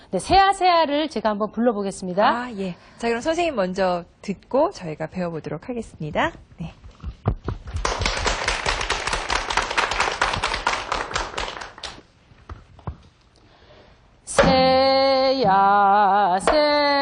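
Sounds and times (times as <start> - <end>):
audience clapping: 7.7 - 12.1.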